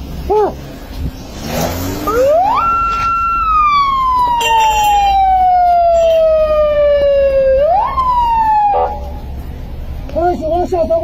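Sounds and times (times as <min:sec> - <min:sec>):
police siren wailing: 0:02.0 - 0:09.2.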